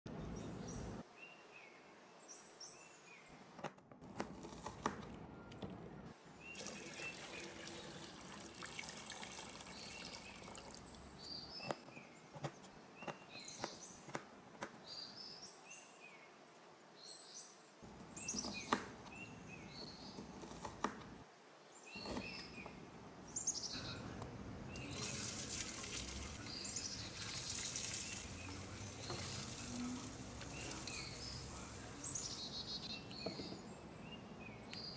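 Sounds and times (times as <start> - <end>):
small birds chirping: 4.3 - 16.4, 17.0 - 21.1, 21.7 - 34.9
steady hiss: 23.6 - 32.8.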